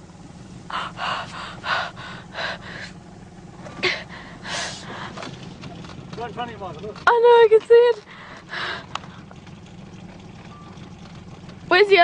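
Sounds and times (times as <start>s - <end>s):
low steady hum: 0.0s - 12.0s
child gasping and breathing hard: 0.7s - 3.0s, 3.8s - 5.2s.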